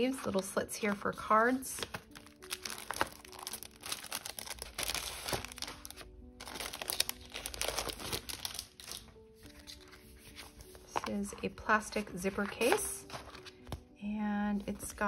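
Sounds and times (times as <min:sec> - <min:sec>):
soft background music: 0:00.0 - 0:15.0
plastic case and paper crinkling: 0:00.3 - 0:13.9.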